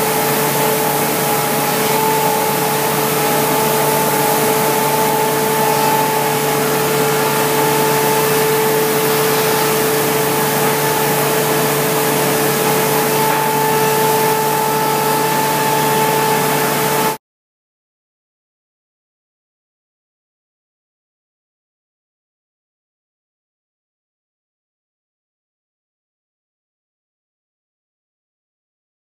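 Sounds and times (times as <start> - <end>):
sanding machine hissing and humming: 0.0 - 17.2.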